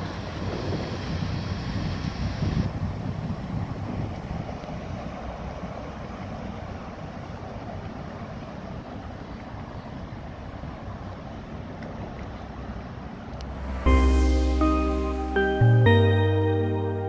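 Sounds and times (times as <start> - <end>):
wind noise on microphone: 0.0 - 5.9.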